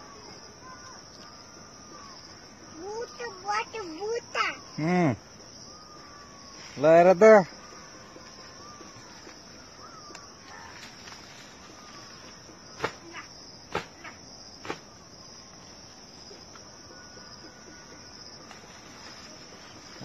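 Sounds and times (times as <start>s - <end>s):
insect chirring: 0.0s - 20.0s.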